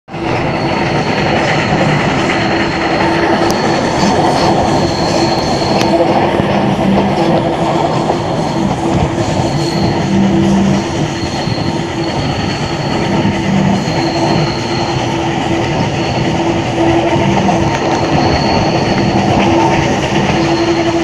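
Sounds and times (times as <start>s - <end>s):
train wheels rumbling and clattering: 0.1s - 21.0s
wheel squeal: 0.2s - 21.0s.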